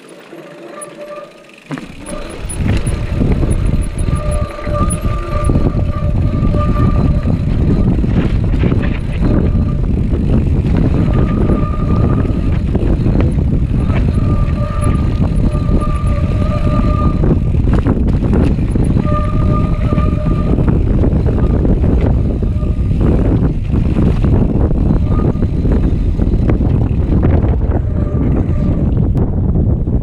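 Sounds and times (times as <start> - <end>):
brake squeal: 0.0 - 29.1
bike rattling over bumps: 0.0 - 30.0
wind buffeting: 1.0 - 30.0.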